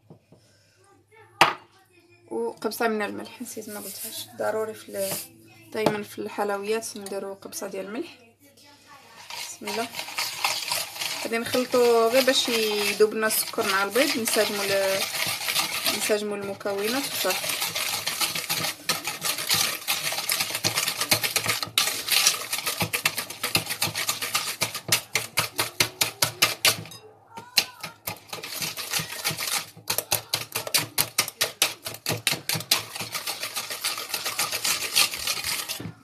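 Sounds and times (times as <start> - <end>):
wire whisk beating in plastic bowl: 9.2 - 36.0.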